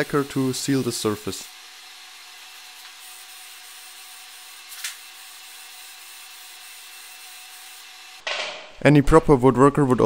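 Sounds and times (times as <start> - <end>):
aerosol spray can hissing: 0.0 - 8.2.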